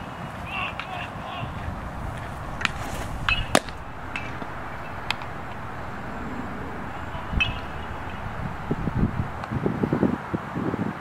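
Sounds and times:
wind gusts buffeting microphone: 1.2s - 9.7s.

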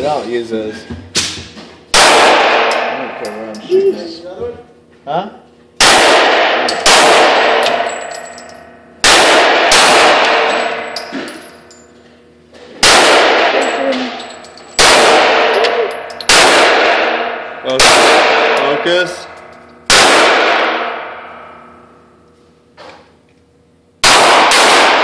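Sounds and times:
pistol shots echoing: 1.9s - 3.2s, 5.8s - 8.1s, 9.0s - 10.9s, 12.8s - 14.2s, 14.8s - 19.3s, 19.9s - 21.7s, 24.0s - 25.0s.

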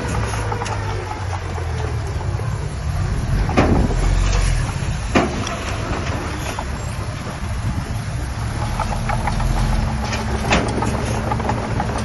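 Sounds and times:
diesel earthmoving machinery droning: 0.0s - 12.0s
sharp knocks: 3.4s - 6.7s.

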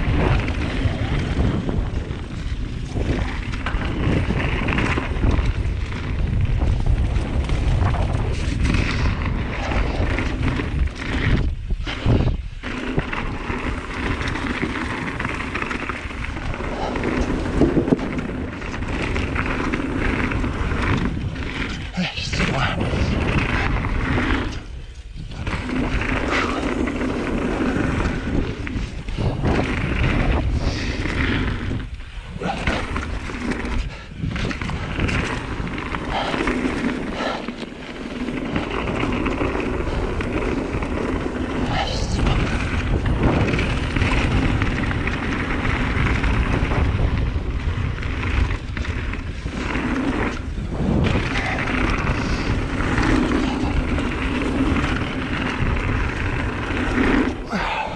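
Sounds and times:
bike tyre noise on dirt: 0.0s - 57.9s
wind rushing over microphone: 0.0s - 57.9s.

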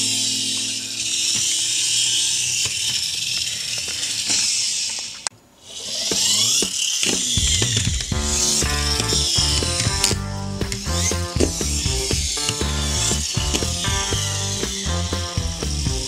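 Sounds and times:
toy car friction motors whirring: 0.0s - 16.0s
background music with a beat: 7.2s - 16.0s.

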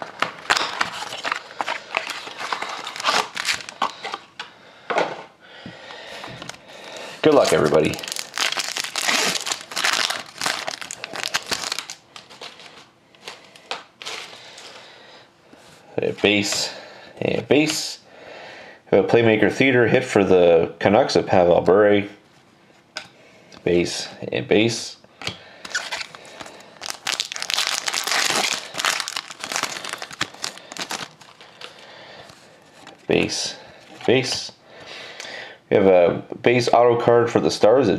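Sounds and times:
foil wrapper crinkling: 0.0s - 4.3s, 6.4s - 14.7s, 25.7s - 33.0s
cards rustling and clicking: 0.0s - 4.5s, 7.2s - 14.7s, 25.6s - 33.2s.

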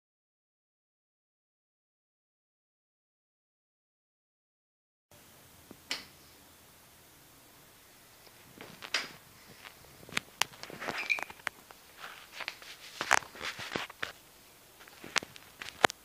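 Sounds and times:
brief squeak: 10.9s - 11.4s.

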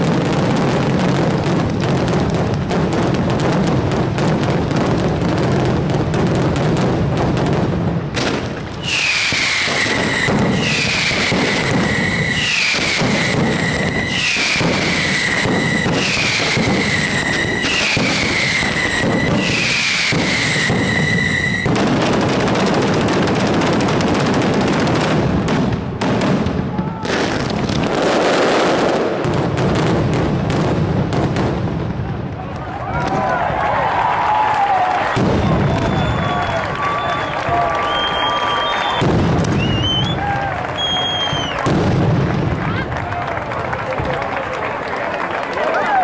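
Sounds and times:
firecrackers rattling barrage: 0.0s - 46.0s
high falling whistle: 8.8s - 21.7s, 35.4s - 41.6s.

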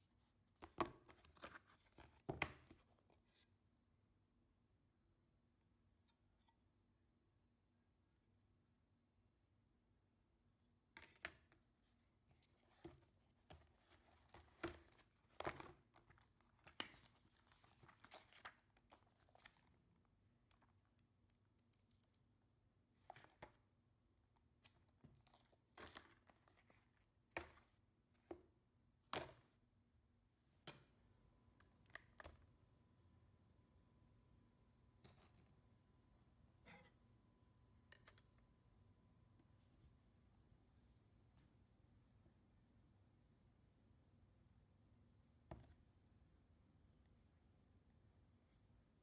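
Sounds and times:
booklet pages flipping: 0.6s - 3.5s, 12.4s - 19.9s, 24.6s - 27.7s
paper and card rustling: 0.6s - 3.5s, 12.4s - 19.9s, 24.6s - 27.8s.

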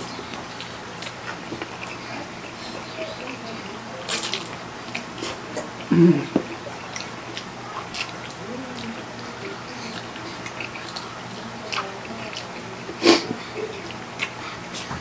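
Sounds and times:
chewing and mouth noises: 0.0s - 15.0s.

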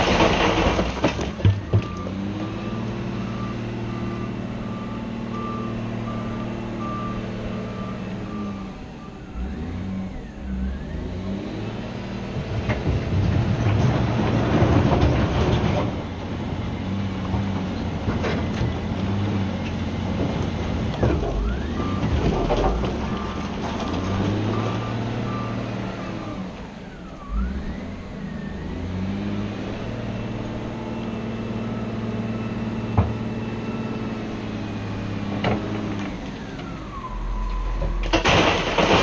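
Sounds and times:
diesel engine running: 0.0s - 39.0s
reversing alarm beeping: 1.6s - 12.0s, 21.4s - 35.1s, 36.2s - 38.0s.

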